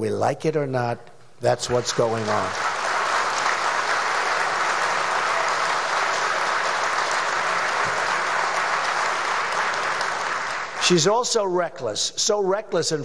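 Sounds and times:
audience applauding: 1.7 - 11.1
cheering: 2.1 - 10.9.

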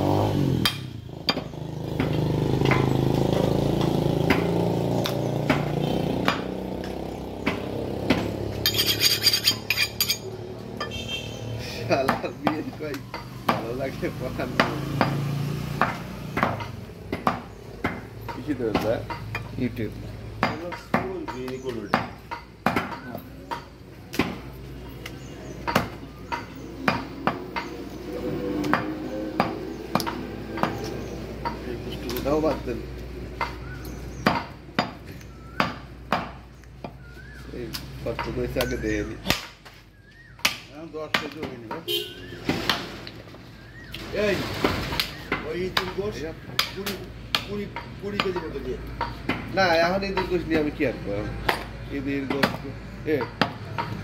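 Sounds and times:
motor engine hum: 0.0 - 8.7
knife chopping meat on wood: 0.6 - 6.6, 7.4 - 10.0, 12.0 - 13.8, 14.4 - 19.6, 20.3 - 27.8, 28.6 - 31.6, 33.4 - 41.9, 45.0 - 49.5, 51.4 - 54.0
sharp metallic clicks and scrapes: 8.6 - 11.0.

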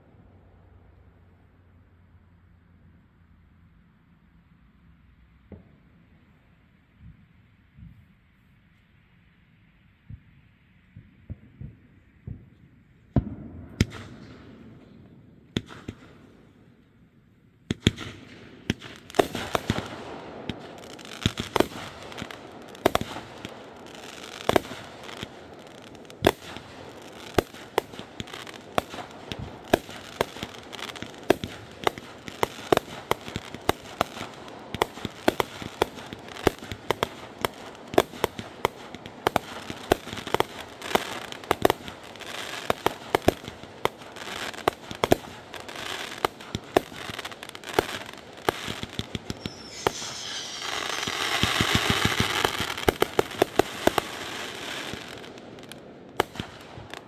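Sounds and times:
fireworks crackling: 10.9 - 16.6, 17.7 - 57.0
fireworks bangs: 11.0 - 16.4, 17.7 - 57.0
firework hiss: 44.0 - 55.7.

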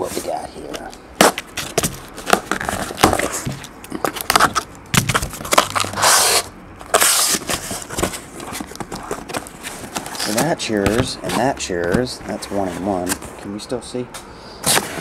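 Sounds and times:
cardboard boxes handled: 0.0 - 13.5
cardboard sliding on cardboard: 5.8 - 13.2.

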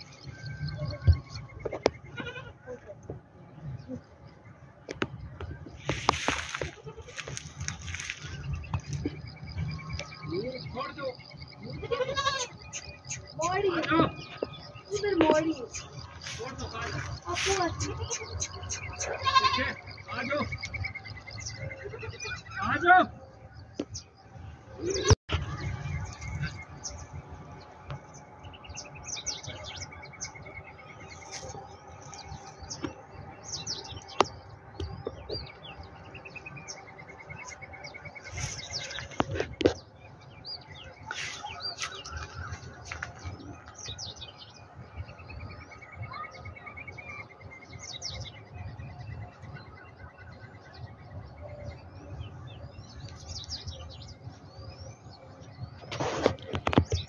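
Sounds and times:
small birds chirping: 0.0 - 57.0
bird trill: 7.7 - 27.2.

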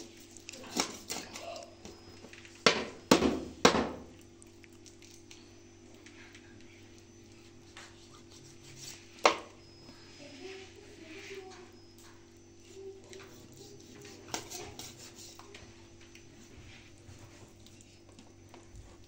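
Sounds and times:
knife cutting raw chicken: 0.6 - 1.4.

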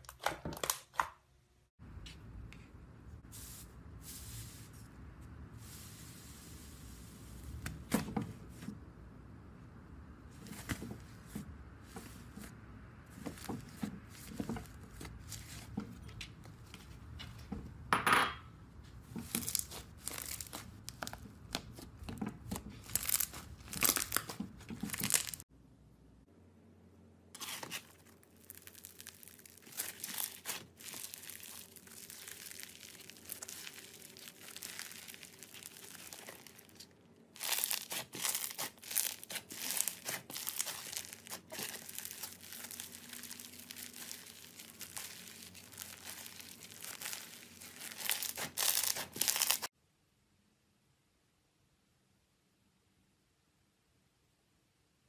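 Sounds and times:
slime crackling and popping: 19.2 - 25.4, 27.4 - 49.7.

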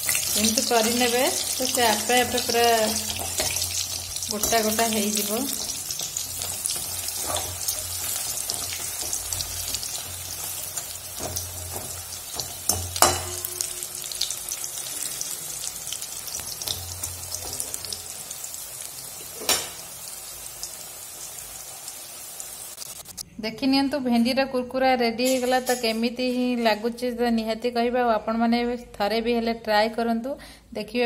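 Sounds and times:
fritters sizzling in oil: 0.0 - 23.2.

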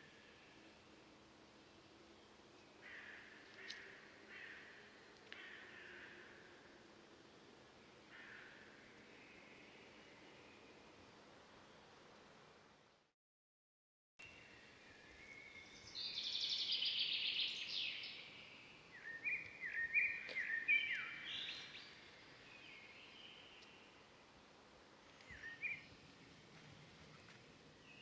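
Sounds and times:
wild birds chattering trill: 15.3 - 26.0.

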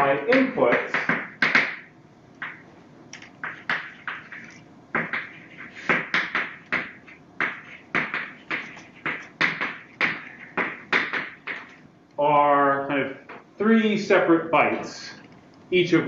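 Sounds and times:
chalk tapping on blackboard: 0.3 - 2.6, 3.4 - 11.8.

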